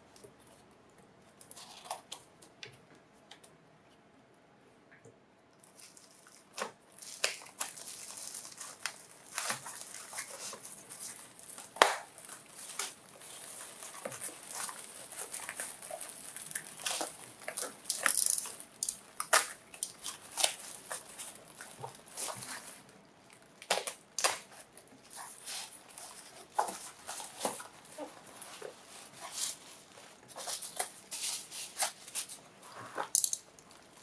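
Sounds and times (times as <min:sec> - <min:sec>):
bubble wrap and paper crinkling: 0:01.3 - 0:02.3, 0:05.6 - 0:34.0
bubble wrap snapping: 0:05.7 - 0:34.0.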